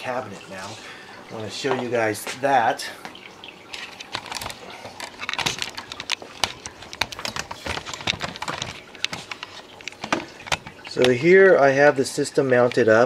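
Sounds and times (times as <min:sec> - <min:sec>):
camera handling clicks and rustles: 0:03.9 - 0:10.8.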